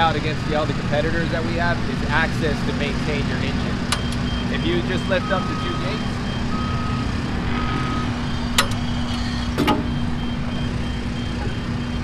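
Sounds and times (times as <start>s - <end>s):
machinery droning: 0.0s - 12.0s
short electronic beeps: 4.0s - 12.0s.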